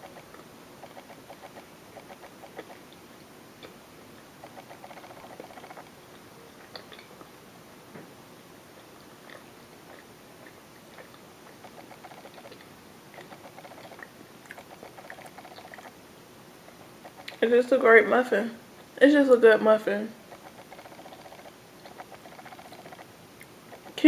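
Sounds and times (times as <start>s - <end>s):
person chewing: 0.1s - 3.0s, 4.4s - 7.3s, 9.1s - 15.9s, 20.3s - 24.0s
wet mouth clicks: 0.8s - 3.0s, 6.6s - 7.2s, 9.2s - 15.9s, 20.3s - 24.0s.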